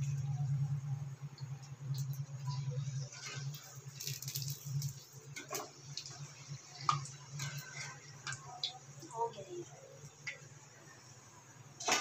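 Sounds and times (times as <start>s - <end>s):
steady low hum: 0.0s - 12.0s
oil sizzling and crackling: 1.2s - 9.4s.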